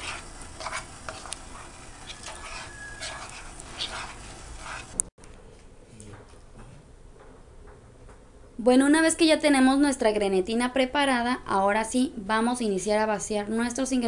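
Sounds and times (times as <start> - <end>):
metal spoon scraping ceramic bowl: 0.0 - 5.0.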